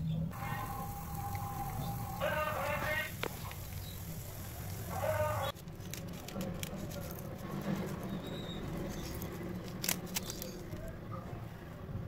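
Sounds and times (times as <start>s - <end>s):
steady low hum: 0.0s - 5.6s.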